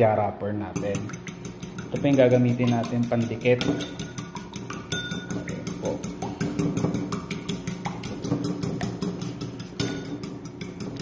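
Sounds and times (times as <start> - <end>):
spoon clinking against bowl: 0.8 - 6.9, 9.6 - 11.0.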